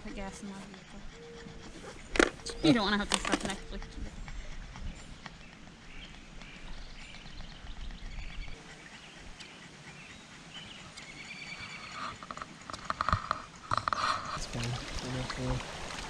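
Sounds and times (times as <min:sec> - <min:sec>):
river ambience: 0:00.0 - 0:16.0
faint bird chirps: 0:03.6 - 0:12.5.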